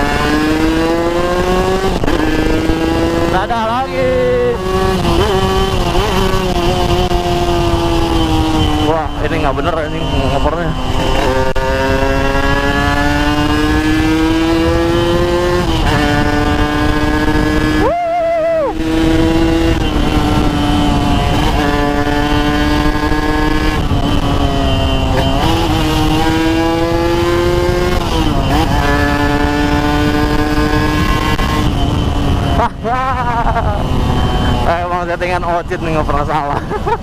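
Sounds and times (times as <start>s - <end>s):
motorcycle engine accelerating: 0.0s - 37.0s
wind and road noise: 0.0s - 37.0s.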